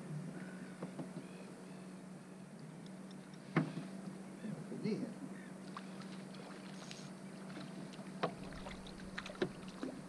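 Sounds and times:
low steady hum: 0.0 - 10.0
fish splashing in water: 7.5 - 10.0.

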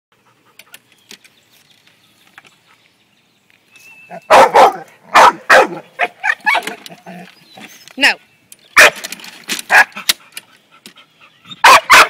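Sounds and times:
dog barking: 4.3 - 6.6, 8.8 - 9.0, 9.7 - 10.0, 11.6 - 12.0.

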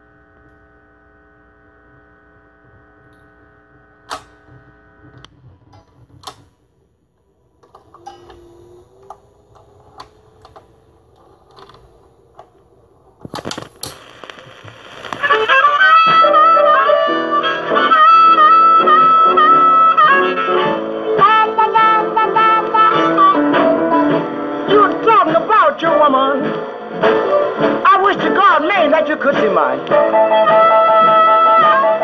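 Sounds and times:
record crackle and hiss: 0.0 - 32.0
record changer mechanical clicks: 9.0 - 15.8
blues music with harmonica: 14.3 - 28.4, 29.4 - 32.0.

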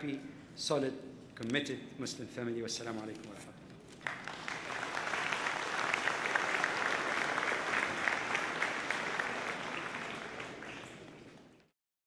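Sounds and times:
audience applauding: 3.9 - 11.7.

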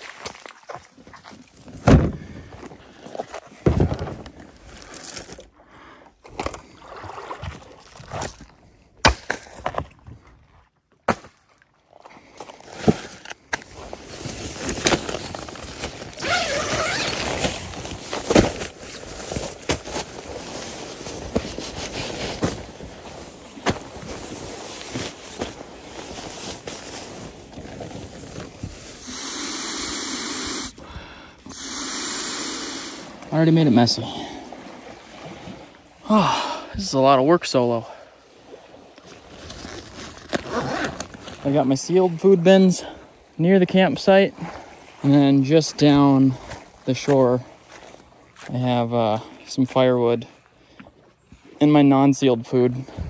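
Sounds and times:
rustling and scraping: 0.0 - 5.5, 12.4 - 29.0, 39.0 - 41.5
camping gear knocks and thumps: 1.6 - 5.4, 12.4 - 28.8
air blown by mouth into valve: 29.0 - 33.2.

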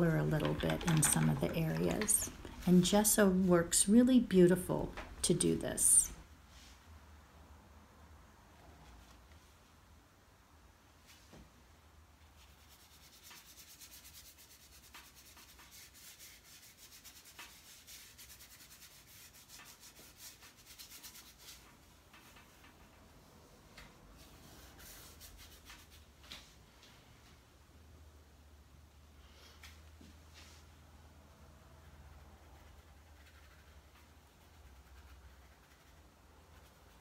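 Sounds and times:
paintbrush rubbing on paper: 12.4 - 23.3, 24.2 - 26.1, 32.5 - 37.0.

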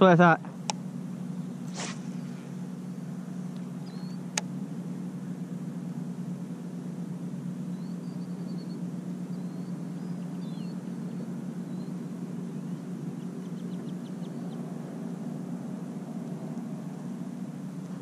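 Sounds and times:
steady low hum: 0.0 - 18.0
faint high bird chirps: 1.2 - 4.4, 7.5 - 14.8.

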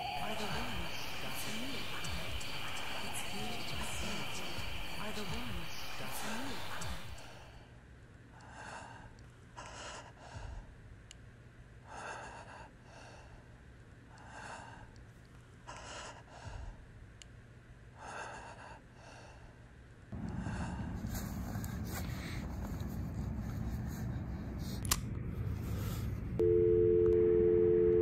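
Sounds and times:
person breathing heavily: 8.3 - 10.8, 11.8 - 15.0, 15.6 - 16.9, 18.0 - 24.8.

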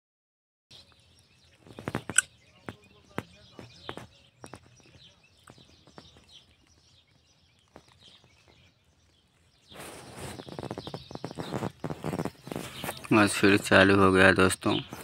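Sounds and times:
high bird chirps: 0.7 - 15.0
scattered clicks: 1.9 - 2.3.

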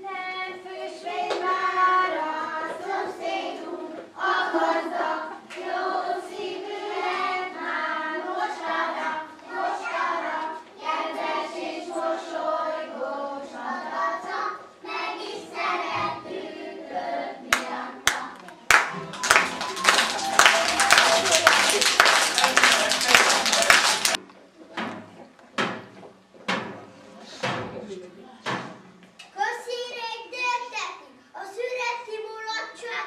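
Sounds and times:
children singing in chorus: 0.0 - 24.2
sharp claps: 17.5 - 24.2.

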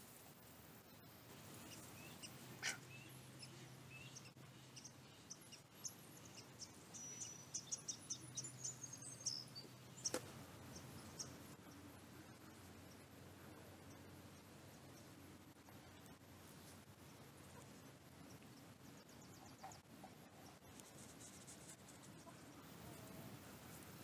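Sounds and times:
faint low hum: 0.0 - 24.0
bird chirps and peeps: 1.6 - 11.4.

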